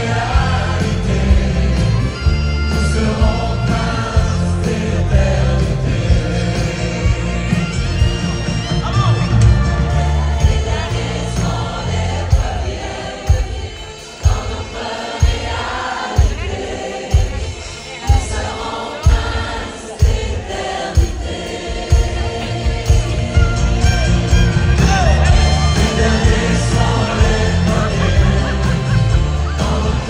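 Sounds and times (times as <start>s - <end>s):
bass drum beating: 0.0s - 14.6s, 21.0s - 30.0s
voices singing: 0.0s - 30.0s.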